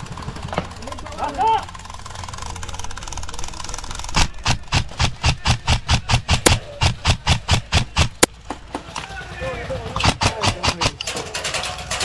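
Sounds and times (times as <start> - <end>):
airsoft rifle shots: 3.9 - 8.3, 10.0 - 11.1.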